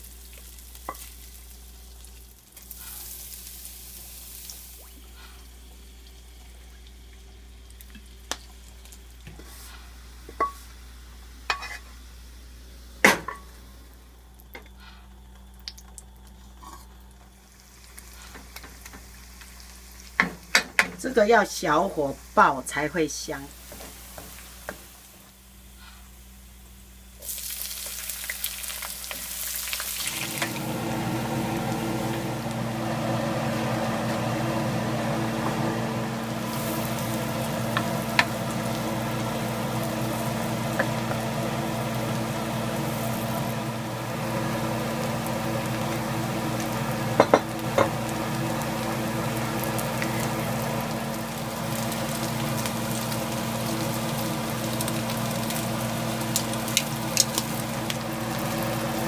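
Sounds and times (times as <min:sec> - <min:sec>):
food sizzling in hot oil: 0:00.0 - 0:14.4, 0:15.4 - 0:59.0.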